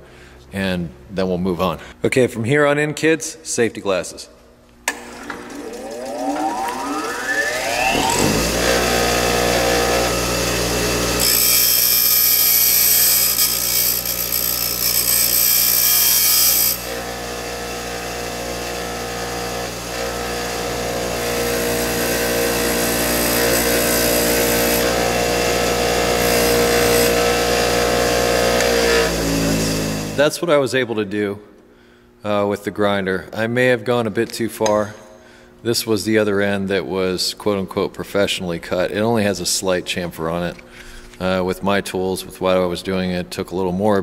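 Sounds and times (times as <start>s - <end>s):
bench grinder motor humming: 4.9s - 30.2s.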